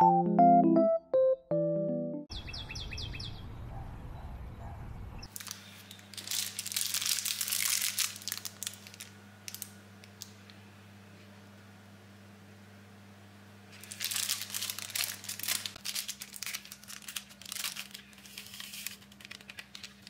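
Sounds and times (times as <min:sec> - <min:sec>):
bird chirps: 0:02.3 - 0:05.3
plastic wrappers crinkling: 0:05.3 - 0:10.4, 0:13.7 - 0:20.0.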